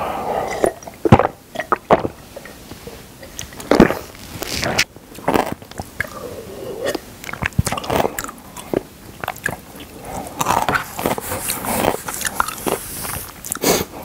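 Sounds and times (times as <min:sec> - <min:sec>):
person gulping and swallowing: 0:00.0 - 0:14.0.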